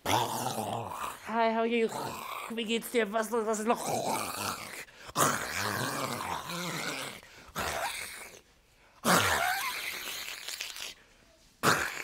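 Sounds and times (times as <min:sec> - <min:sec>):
woman making growling noises: 0:03.6 - 0:08.4.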